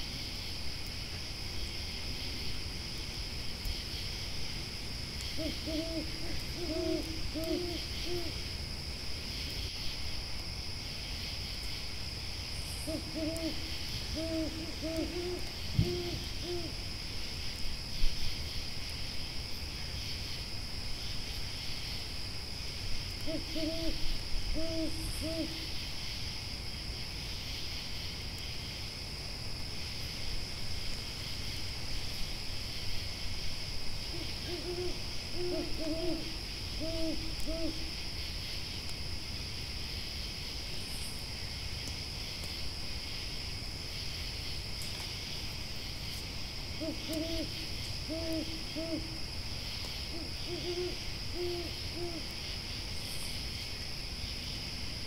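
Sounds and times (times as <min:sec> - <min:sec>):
insects chirring: 0:00.0 - 0:55.0
owl hooting: 0:05.4 - 0:08.4, 0:12.8 - 0:16.8, 0:23.2 - 0:25.7, 0:34.1 - 0:37.9, 0:46.8 - 0:49.2, 0:50.1 - 0:52.3.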